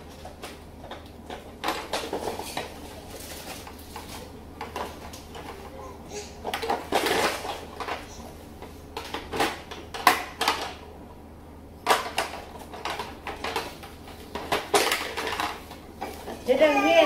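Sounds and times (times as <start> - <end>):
rustling: 1.7 - 5.7
plastic parts clicking and knocking: 11.8 - 16.4.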